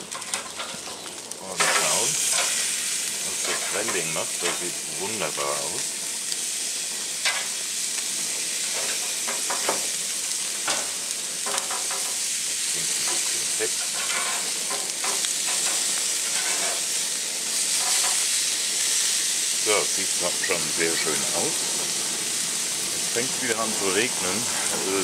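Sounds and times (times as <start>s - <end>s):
meat sizzling on grill: 0.0s - 25.0s
metal tongs scraping grate: 0.1s - 2.6s, 3.3s - 4.7s, 13.0s - 16.9s.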